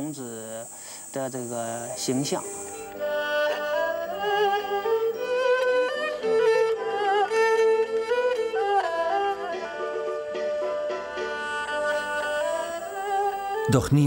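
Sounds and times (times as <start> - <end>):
steady held note: 0.5 - 5.6, 11.2 - 13.7
bowed fiddle melody with vibrato: 2.0 - 13.8.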